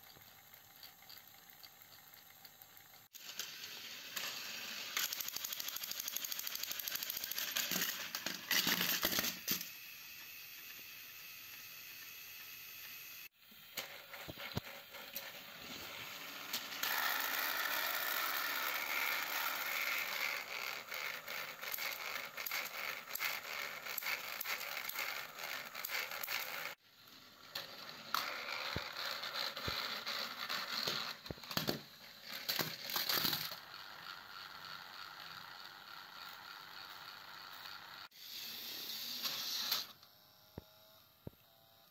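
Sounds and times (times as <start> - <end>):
wheel clicks: 0.0 - 3.4, 4.1 - 9.6
toy train motors whirring: 0.0 - 41.9.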